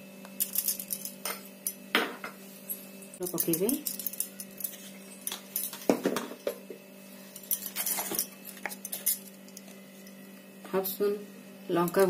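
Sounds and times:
steady low hum: 0.0 - 12.0
metal spoon clinking on bowls: 0.4 - 1.8, 3.2 - 5.9, 7.4 - 10.2.

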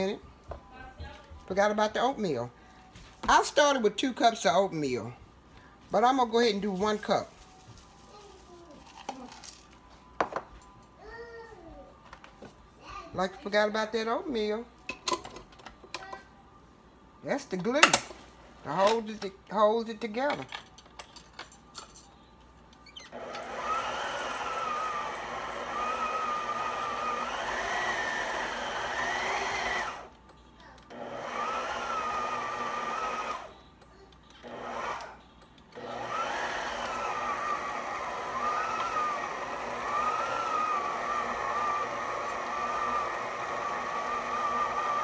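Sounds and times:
stand mixer motor whining: 23.1 - 30.1, 30.9 - 33.5, 35.8 - 45.0.

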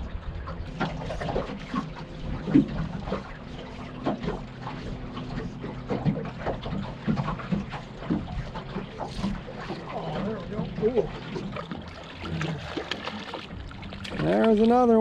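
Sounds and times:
wind rumble on microphone: 0.0 - 5.4
waves slapping boat hull: 0.0 - 15.0.

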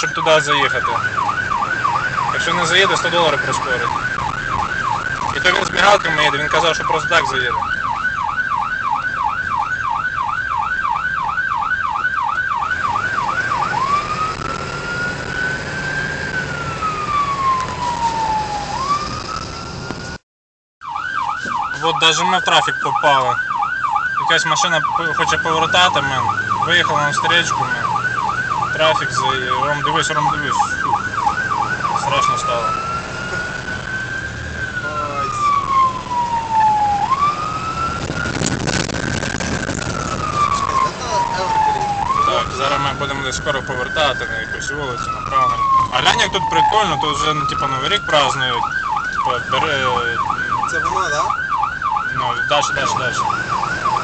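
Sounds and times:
ambulance siren: 0.0 - 20.2, 20.8 - 54.0
engine and road rumble: 0.0 - 20.2, 20.8 - 54.0
burst of rough noise: 37.3 - 42.0.

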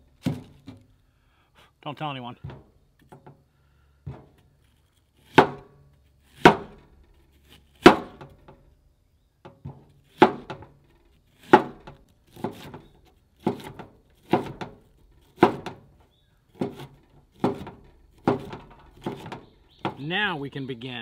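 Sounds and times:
knife chopping onion on board: 13.4 - 14.7.

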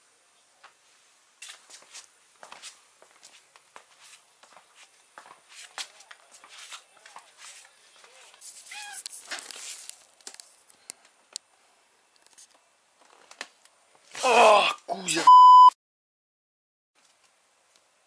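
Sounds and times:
cat mewing: 8.7 - 9.1.

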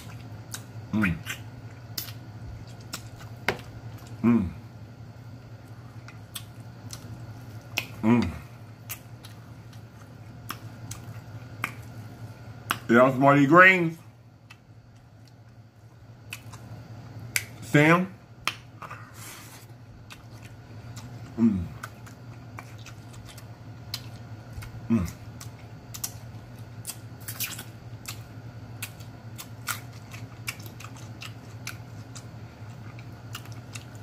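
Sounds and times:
person chewing with lip smacks: 0.0 - 4.2, 5.6 - 12.9, 14.4 - 15.6, 16.2 - 17.6, 18.4 - 34.0
person moaning mmm: 4.2 - 4.6, 8.0 - 8.5, 21.3 - 21.9, 24.8 - 25.2.

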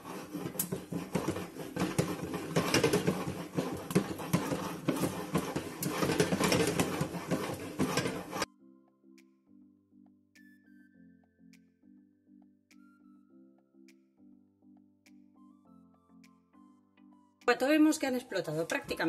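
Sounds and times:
popcorn rattling and sizzling in pot: 0.0 - 8.5
soft music: 8.4 - 19.0.

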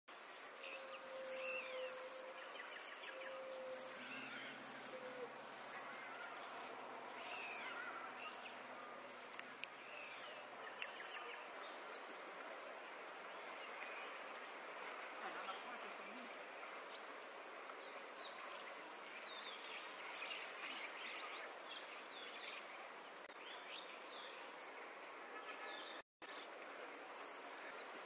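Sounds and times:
low steady animal call: 0.7 - 9.3.

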